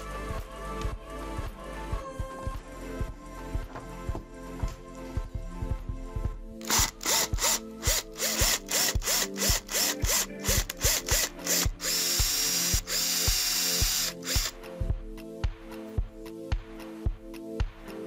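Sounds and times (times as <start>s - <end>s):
background music with steady beat: 0.0s - 18.0s
power drill boring through wood: 6.6s - 14.6s.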